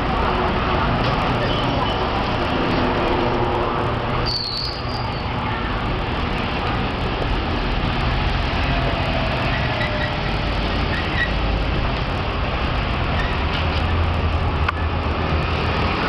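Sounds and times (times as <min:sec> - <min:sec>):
traffic on a road: 0:00.0 - 0:16.0
brief high squeak: 0:04.3 - 0:05.2.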